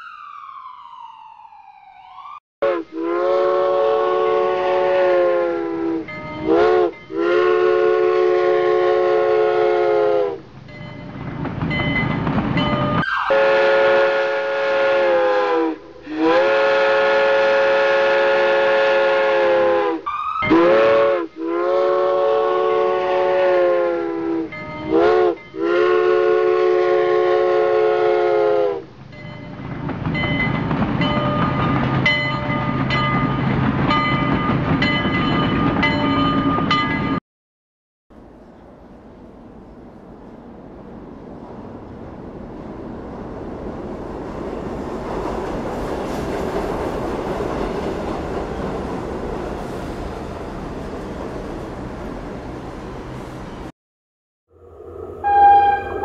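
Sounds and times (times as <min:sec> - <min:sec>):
train whistle blasts: 0:02.6 - 0:10.4, 0:13.0 - 0:28.9, 0:54.9 - 0:56.0
train running rumble: 0:10.2 - 0:13.0, 0:28.9 - 0:37.2, 0:38.2 - 0:53.7.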